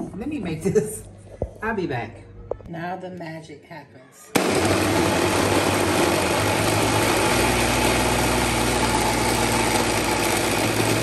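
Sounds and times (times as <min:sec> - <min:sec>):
blender motor running: 0:04.4 - 0:11.0.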